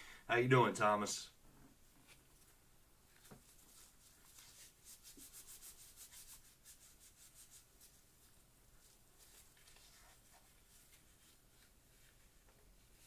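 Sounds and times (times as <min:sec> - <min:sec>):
faint rapid rubbing: 0:03.4 - 0:13.0.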